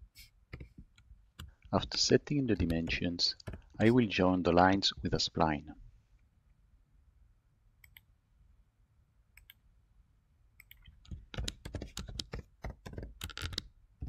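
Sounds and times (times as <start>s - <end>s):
computer keyboard typing: 2.6s - 3.8s, 10.6s - 13.7s
mouse clicks: 7.8s - 8.1s, 9.4s - 9.6s, 10.6s - 12.3s.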